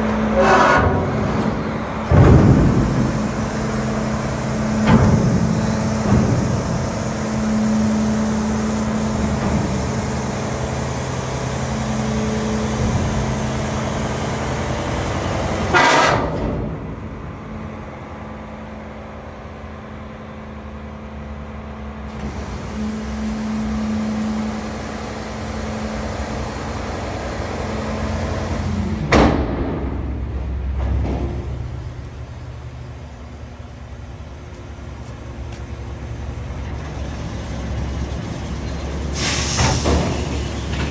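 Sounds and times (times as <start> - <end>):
garbage truck engine droning: 0.0 - 40.9.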